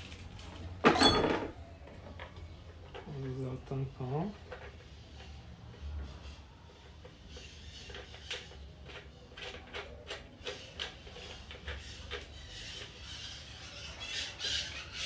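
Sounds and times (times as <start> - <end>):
plastic clicks and scrapes: 4.2 - 15.0.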